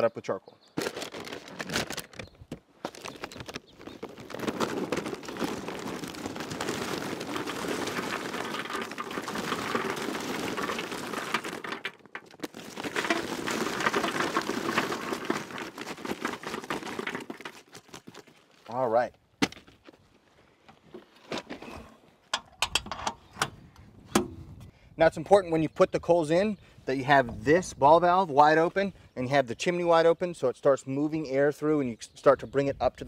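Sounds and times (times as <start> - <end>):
charcoal briquettes rattling into chute: 4.0 - 17.7.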